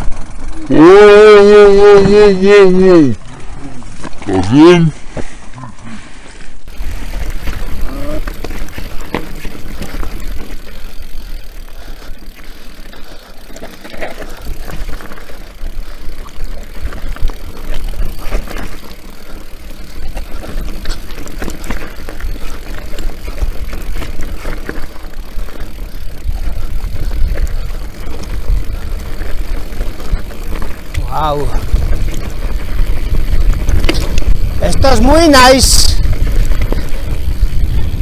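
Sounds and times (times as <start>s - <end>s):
bike chain and suspension rattling: 0.0s - 38.0s
tyres rolling over stones: 6.7s - 38.0s
wind rumble on microphone: 25.4s - 38.0s.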